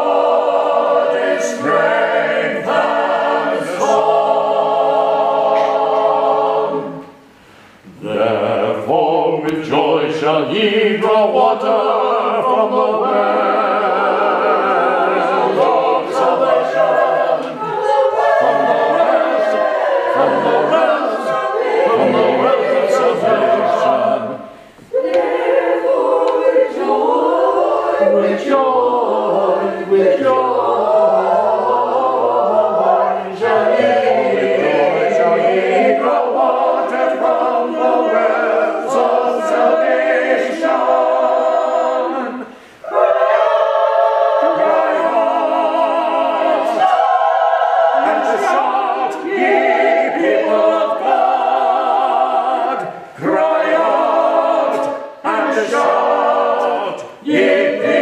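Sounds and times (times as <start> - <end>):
small choir singing: 0.0 - 58.0.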